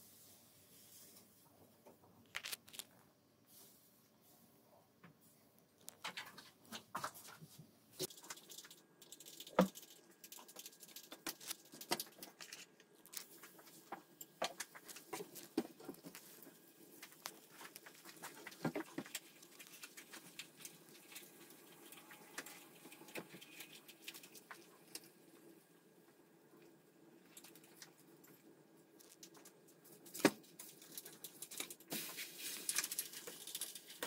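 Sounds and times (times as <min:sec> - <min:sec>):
batter sizzling in frying pan: 0:30.5 - 0:34.0.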